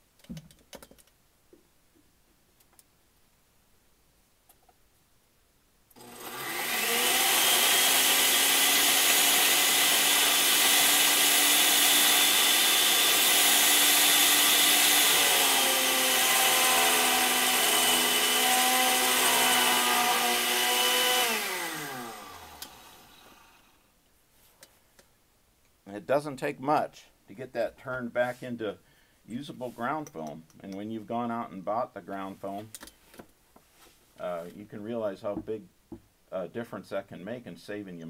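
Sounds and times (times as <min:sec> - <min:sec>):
blender motor whining: 0:06.0 - 0:23.8.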